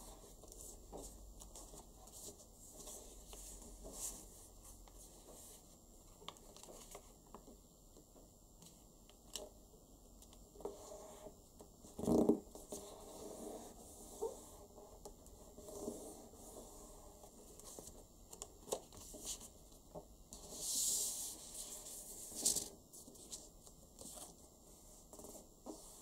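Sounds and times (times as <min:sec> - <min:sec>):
paper rustling and crinkling: 0:06.2 - 0:07.5, 0:17.2 - 0:19.7, 0:20.4 - 0:24.5.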